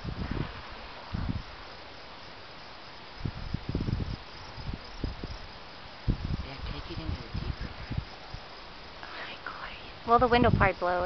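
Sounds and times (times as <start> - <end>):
wind gusts buffeting microphone: 0.0 - 1.7, 3.2 - 9.0, 9.9 - 11.0
insects trilling: 0.0 - 11.0.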